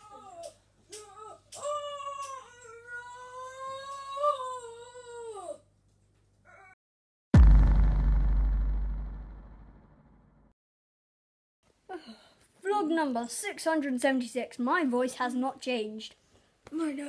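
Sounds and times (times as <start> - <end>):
loud boom: 7.4 - 10.5.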